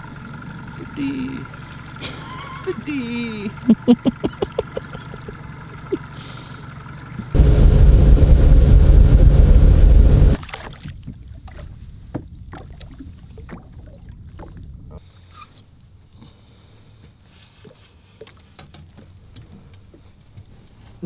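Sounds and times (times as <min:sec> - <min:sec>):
outboard motor running: 0:00.0 - 0:10.4
wind noise on microphone: 0:07.4 - 0:10.4
faint water splashing: 0:10.4 - 0:18.5.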